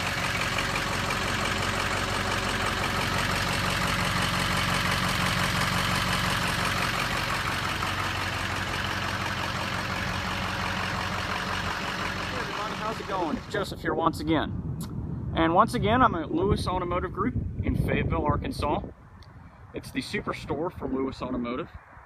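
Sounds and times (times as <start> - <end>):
diesel truck engine idling: 0.0 - 13.8.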